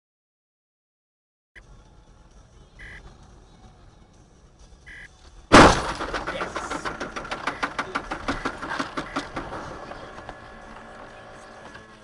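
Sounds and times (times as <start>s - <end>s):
rapid rattling clatter from car: 5.6s - 12.0s.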